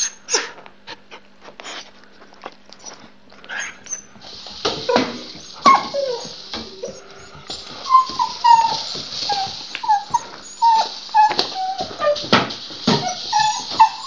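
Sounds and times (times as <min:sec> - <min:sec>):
dog whining and yipping: 0:02.8 - 0:14.0.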